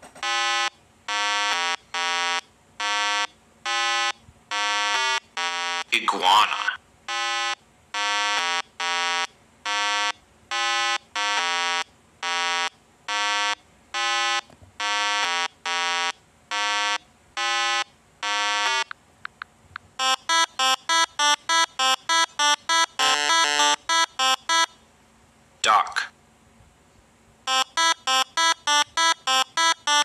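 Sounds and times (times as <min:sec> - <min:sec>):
buzzy synthesized tune: 0:20.0 - 0:24.6, 0:27.5 - 0:30.0
short electronic beeps: 0:20.0 - 0:24.8, 0:27.5 - 0:30.0.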